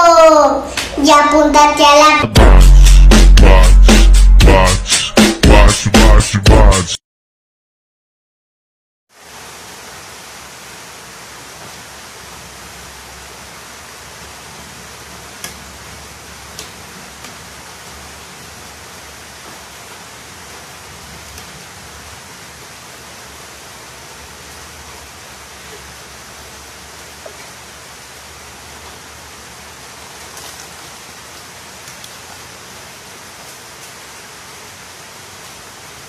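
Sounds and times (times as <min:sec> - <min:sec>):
steady hissing noise: 0:00.0 - 0:05.8, 0:09.1 - 0:36.0.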